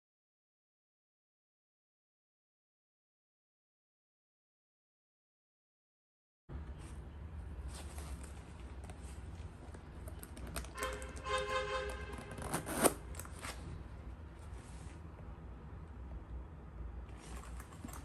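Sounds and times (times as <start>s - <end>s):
metal zipper rasping: 10.4s - 13.6s.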